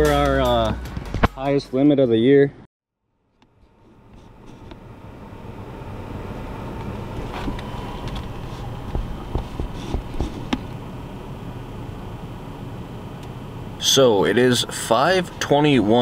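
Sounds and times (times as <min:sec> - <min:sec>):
vehicle engine rumble: 0:03.2 - 0:16.0
knocks and clicks: 0:07.5 - 0:10.7.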